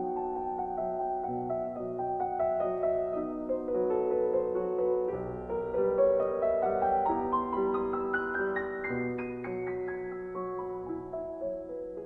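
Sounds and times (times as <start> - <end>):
slow gentle instrumental music: 0.0 - 12.0.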